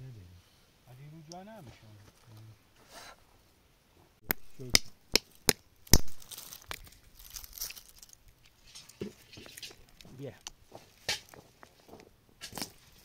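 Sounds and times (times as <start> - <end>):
stone cracking pits on rock: 4.3 - 13.0
broken shells scraping: 4.4 - 13.0.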